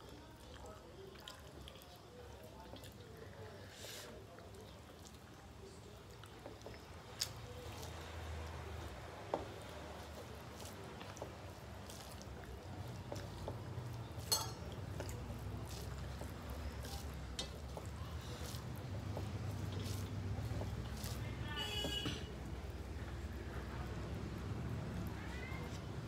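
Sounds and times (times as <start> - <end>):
fingers squishing rice: 0.4 - 26.0
clinks against metal plate: 14.3 - 14.6.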